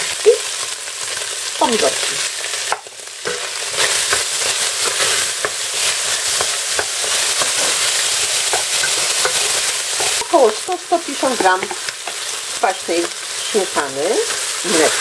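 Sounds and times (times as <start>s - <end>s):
food sizzling in oil: 0.0s - 15.0s
wooden spoon scraping pan: 3.2s - 10.6s, 11.2s - 12.4s.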